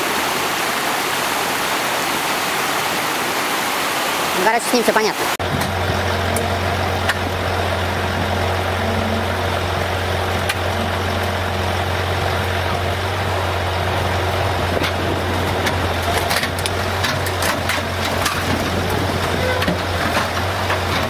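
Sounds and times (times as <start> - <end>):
rushing background noise: 0.0 - 21.0
vehicle engine idling: 5.4 - 21.0.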